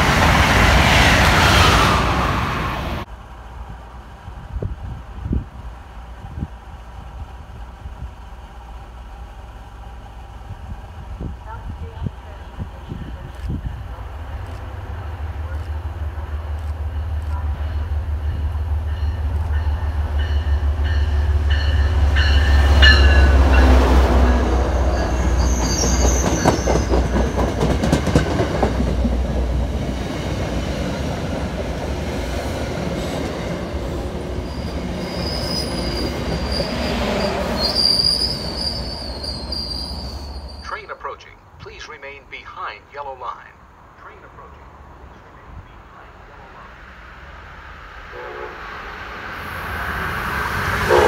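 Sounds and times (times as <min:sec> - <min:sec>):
high wheel squeal: 0:24.8 - 0:27.5, 0:34.4 - 0:40.7.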